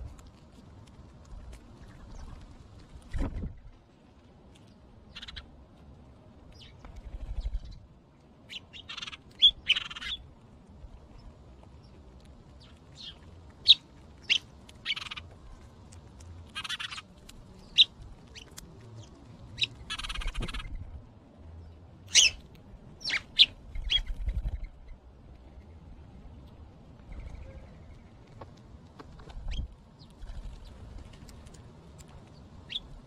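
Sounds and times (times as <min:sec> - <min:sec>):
sparrows chirping: 0:04.7 - 0:05.5, 0:06.5 - 0:10.4, 0:11.1 - 0:20.9, 0:21.6 - 0:26.0, 0:26.9 - 0:28.3, 0:29.4 - 0:33.0.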